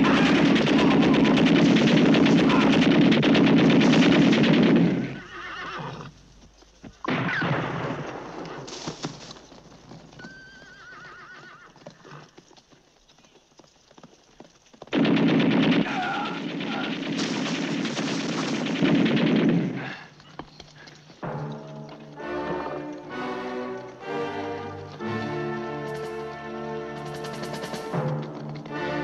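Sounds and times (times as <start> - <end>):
machine gun firing in bursts: 0.0 - 5.2, 14.9 - 20.1, 26.9 - 28.2
horses whinnying: 4.9 - 6.2, 8.5 - 12.6.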